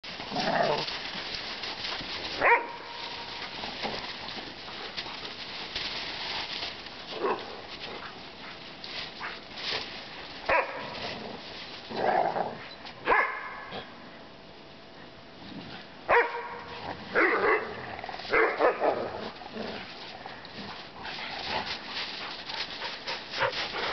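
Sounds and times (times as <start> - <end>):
footsteps crunching in snow: 0.0 - 12.6, 16.6 - 23.9
dogs barking: 2.4 - 3.2, 10.5 - 11.0, 13.0 - 13.7, 16.1 - 19.1.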